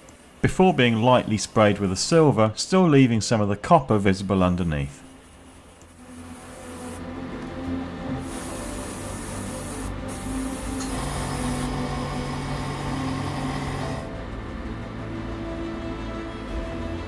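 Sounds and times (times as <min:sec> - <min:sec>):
background music with held notes: 0:04.6 - 0:17.0
airbrush spraying hiss: 0:05.1 - 0:07.1, 0:08.2 - 0:11.8.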